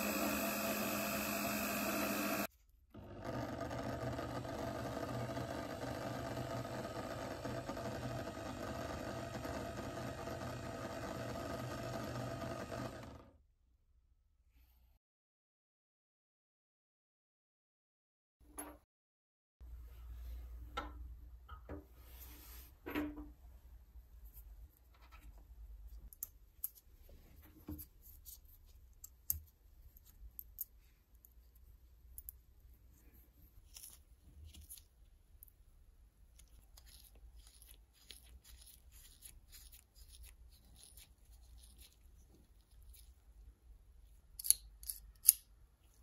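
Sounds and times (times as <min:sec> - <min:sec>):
small metal parts clicking: 0:44.3 - 0:45.5.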